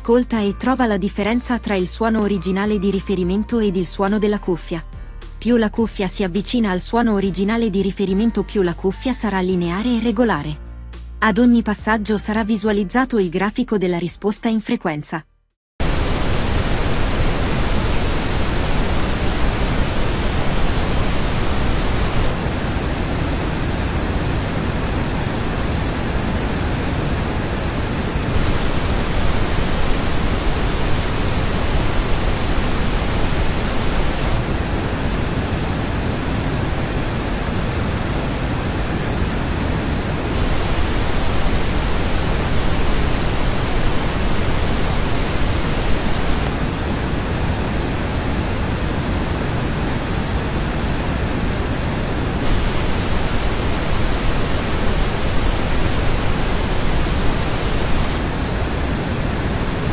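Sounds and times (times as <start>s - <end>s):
pink noise test signal: 15.8s - 59.9s.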